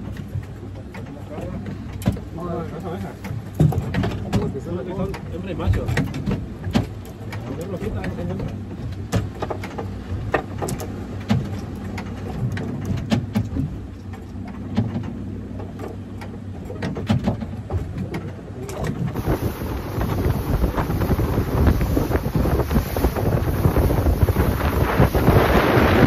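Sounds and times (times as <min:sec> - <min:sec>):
light clicks and knocks: 0:00.0 - 0:19.2
boat engine idling: 0:00.0 - 0:26.0
wind rushing across microphone: 0:18.8 - 0:26.0.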